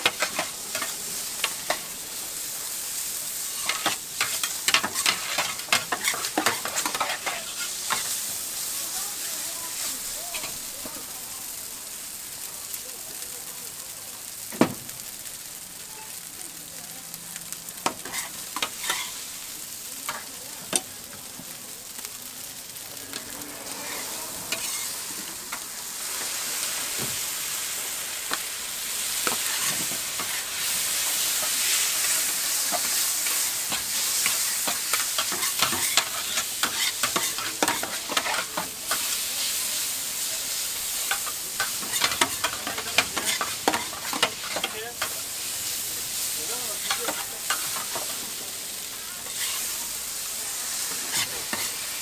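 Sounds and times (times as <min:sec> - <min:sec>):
noodles sizzling on griddle: 0:00.0 - 0:52.0
metal spatulas scraping griddle: 0:03.5 - 0:08.1, 0:18.0 - 0:19.1, 0:23.2 - 0:25.6, 0:41.1 - 0:45.1, 0:49.2 - 0:49.6.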